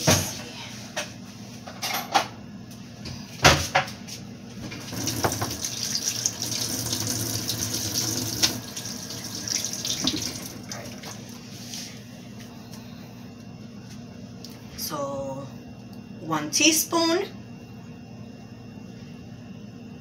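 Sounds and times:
kitchen tap running: 4.7s - 11.9s.

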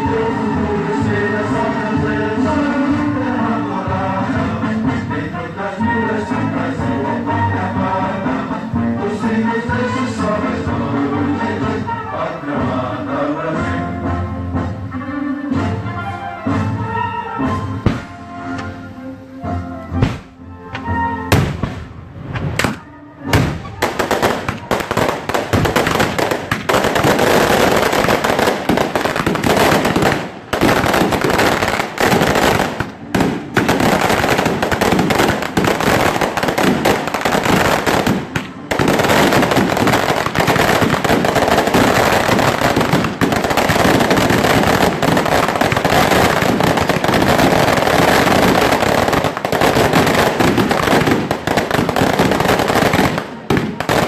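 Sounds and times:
fireworks bangs: 17.8s - 18.2s, 21.3s - 54.0s
fireworks crackling: 21.3s - 54.0s.

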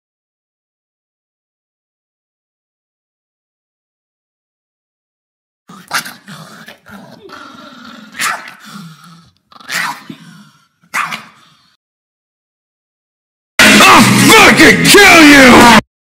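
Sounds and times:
small dog growling: 5.7s - 11.8s
dog yapping: 8.1s - 8.6s, 10.9s - 11.4s.

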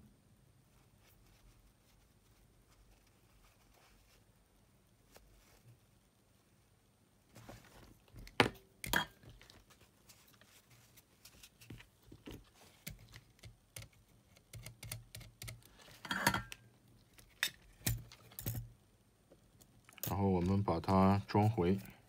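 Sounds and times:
small clicks and taps: 11.7s - 15.8s.

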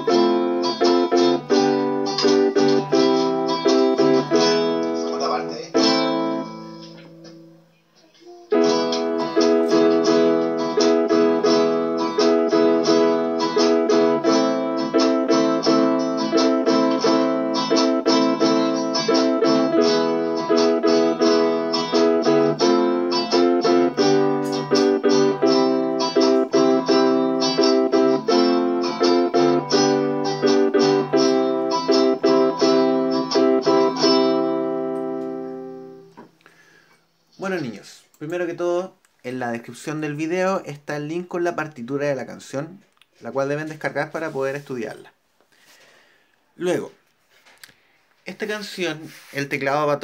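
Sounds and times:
strummed guitar: 0.0s - 7.5s, 8.5s - 35.7s
electronic keyboard chords: 0.0s - 7.7s, 8.5s - 36.2s.

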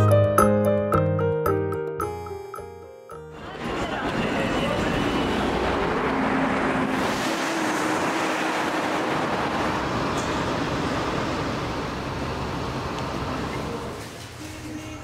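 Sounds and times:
cars passing: 3.3s - 14.0s.

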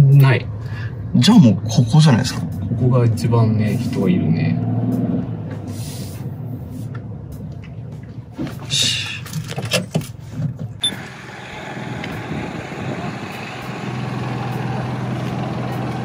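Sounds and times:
vehicle engine idling: 10.8s - 16.0s.

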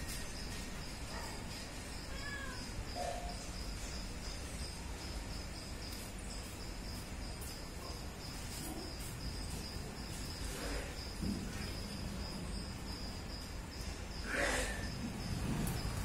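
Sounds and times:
high-pitched insect chirping: 0.0s - 16.0s.

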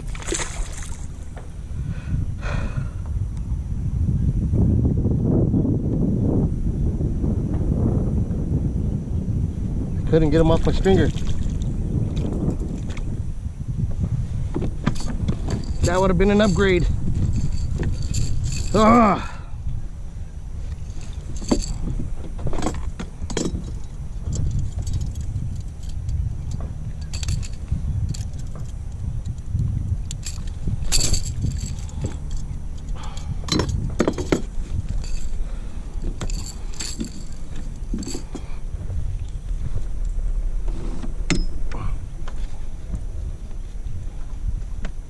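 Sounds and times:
steady low rumble: 0.0s - 45.0s
fishing gear clicking and rattling: 14.5s - 19.4s, 20.5s - 43.1s.

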